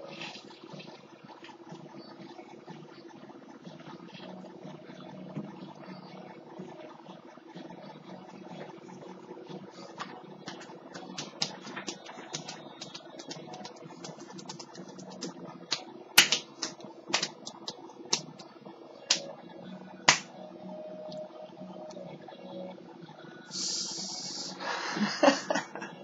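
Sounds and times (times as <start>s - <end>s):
faint steady hum: 0.0s - 26.0s
loud hand smacks: 16.2s - 17.3s, 20.1s - 20.3s.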